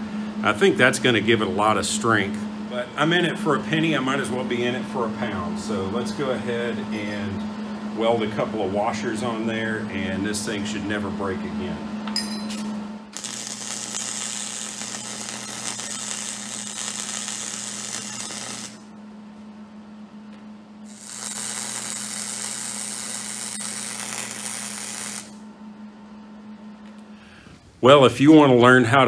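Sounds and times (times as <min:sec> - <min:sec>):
low buzz: 0:00.0 - 0:27.5
arc welding crackling hiss: 0:13.1 - 0:18.9, 0:20.9 - 0:25.4.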